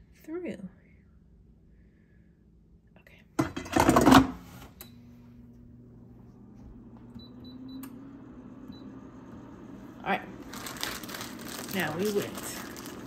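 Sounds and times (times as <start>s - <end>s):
air fryer fan hum: 3.4s - 13.0s.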